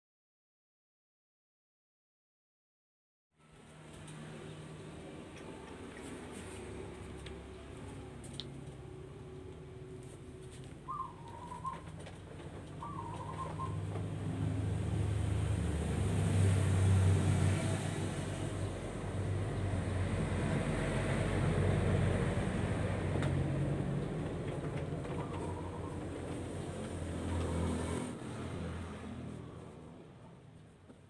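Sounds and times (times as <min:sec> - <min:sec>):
passing motor vehicle rumble: 0:03.4 - 0:31.0
short bird calls: 0:10.8 - 0:11.9, 0:12.8 - 0:13.8.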